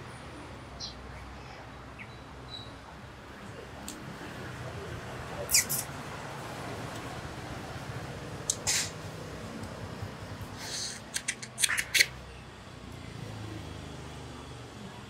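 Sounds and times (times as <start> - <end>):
short clicks: 11.0 - 12.1.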